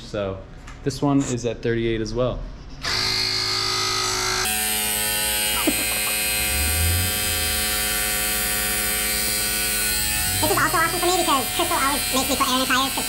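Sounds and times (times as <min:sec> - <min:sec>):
tire inflator pump humming: 0:02.9 - 0:13.0.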